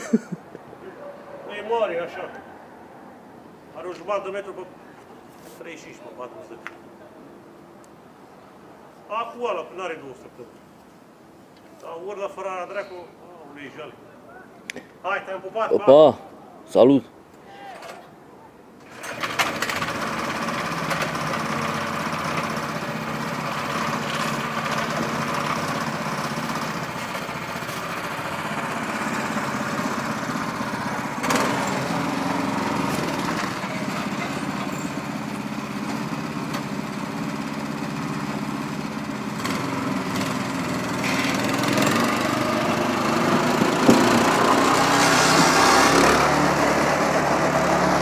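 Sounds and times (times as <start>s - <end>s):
small petrol engine running: 18.8s - 48.0s
sharp knocks: 43.3s - 44.5s.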